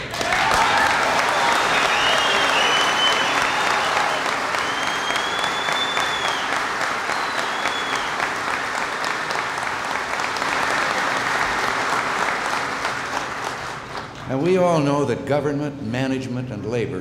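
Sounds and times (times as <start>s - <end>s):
audience applauding: 0.0s - 14.4s
high whistles: 1.3s - 8.4s.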